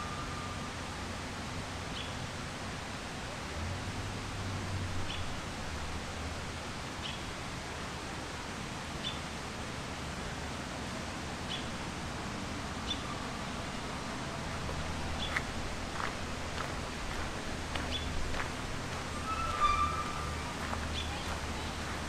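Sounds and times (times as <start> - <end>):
river water rushing: 0.0 - 22.0
bird chirping: 19.2 - 21.9.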